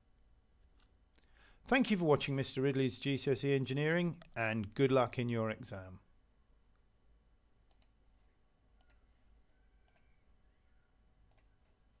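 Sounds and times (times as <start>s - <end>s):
computer mouse clicks: 7.7s - 8.0s, 8.8s - 9.1s, 9.8s - 10.2s, 11.3s - 11.6s.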